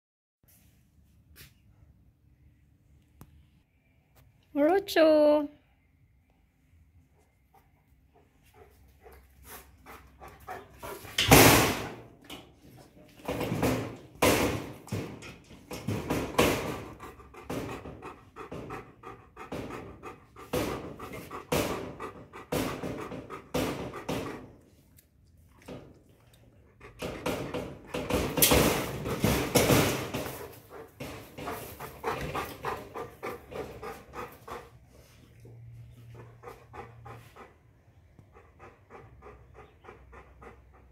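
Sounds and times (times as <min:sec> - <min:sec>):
dog panting hard: 0:07.2 - 0:12.1, 0:15.8 - 0:24.7, 0:26.5 - 0:40.9.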